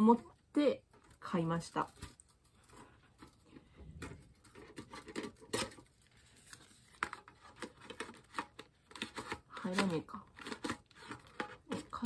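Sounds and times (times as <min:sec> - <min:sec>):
fingers tapping and scraping tin can: 0:07.0 - 0:12.0.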